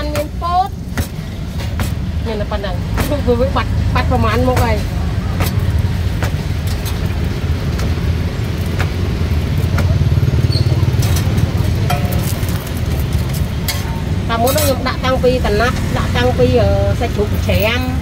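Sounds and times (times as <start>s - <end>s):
dough slapping on steel counter: 0.0s - 2.1s, 2.8s - 7.0s, 8.6s - 10.0s
road traffic engine rumble: 0.0s - 18.0s.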